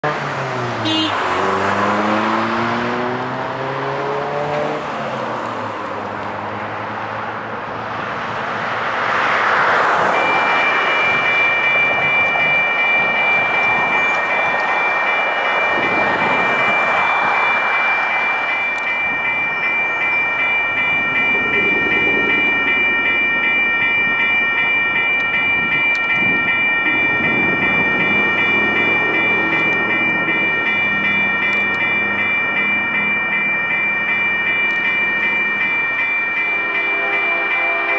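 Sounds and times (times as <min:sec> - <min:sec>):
car engine accelerating: 0:00.0 - 0:09.1
vehicle approaching: 0:00.0 - 0:36.6
tyres humming on road: 0:00.0 - 0:37.9
freight train rumble: 0:07.6 - 0:37.9
electronic crossing bells ringing: 0:09.3 - 0:37.9.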